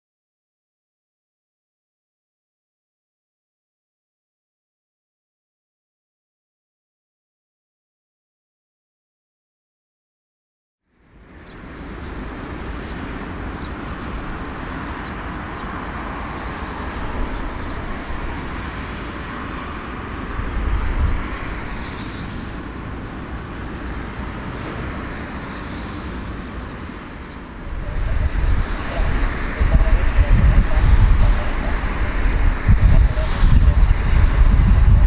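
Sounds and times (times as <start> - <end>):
jet airliner taxiing: 11.1 - 35.0.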